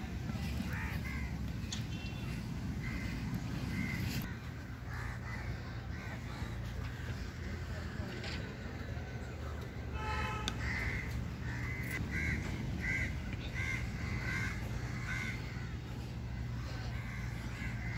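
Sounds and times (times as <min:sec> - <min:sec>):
crow cawing: 0:00.7 - 0:01.3, 0:02.8 - 0:06.7, 0:10.0 - 0:15.8.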